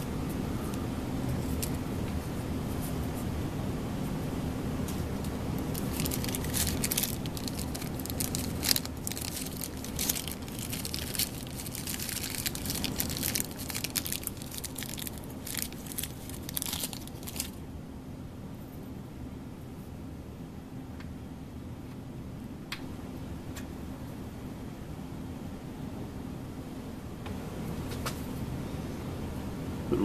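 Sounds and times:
plastic packaging crinkling: 1.3 - 1.8, 5.6 - 17.6.

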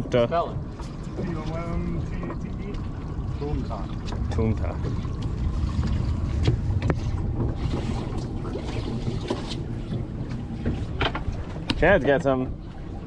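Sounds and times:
wind rumble on microphone: 0.0 - 13.0
sharp clicks and knocks: 10.6 - 11.8.

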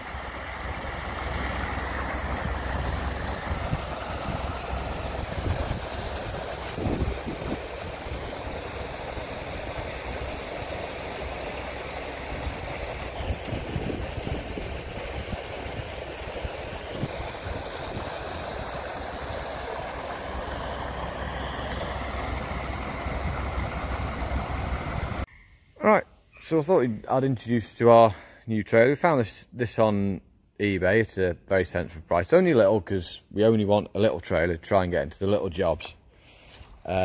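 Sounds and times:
tractor engine running: 0.0 - 25.3
tyres hissing on wet track: 0.0 - 25.3.

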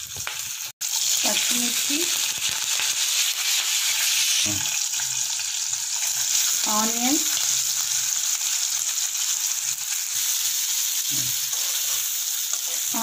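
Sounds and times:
onions sizzling in oil: 0.0 - 13.0
spatula stirring in pan: 7.4 - 13.0.

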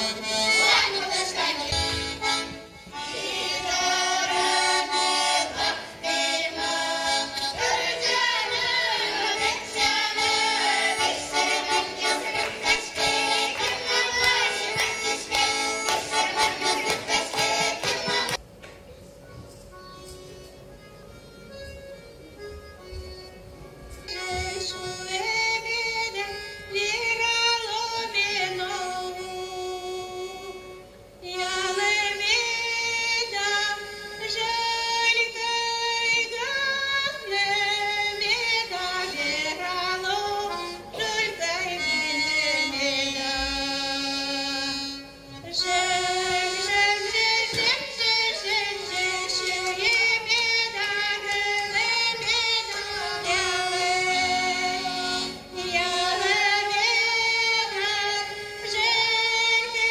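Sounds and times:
accordion: 0.0 - 18.4, 19.1 - 59.9
woman singing folk melody: 24.1 - 59.9.

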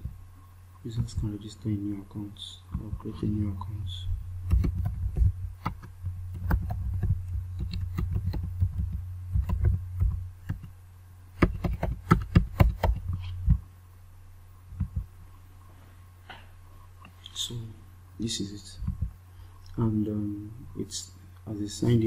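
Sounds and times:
steady low hum: 0.0 - 22.0
keyboard typing: 4.5 - 10.7, 11.4 - 13.6.

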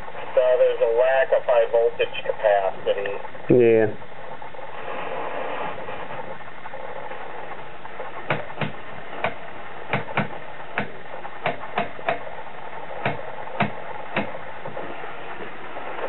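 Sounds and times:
steady hiss: 0.0 - 16.0
sharp clicks: 8.3 - 12.2.

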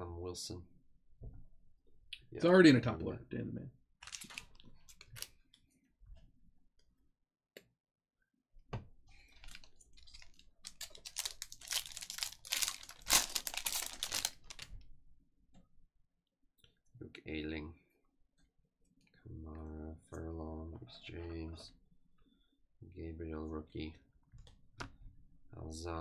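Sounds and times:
wrapper crinkling and tearing: 4.0 - 5.3, 9.3 - 14.8.

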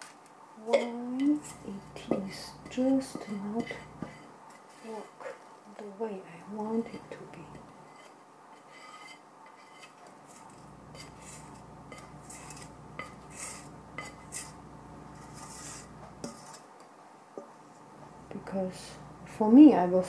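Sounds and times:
spatula scraping batter in dish: 0.8 - 5.4, 6.8 - 16.7.

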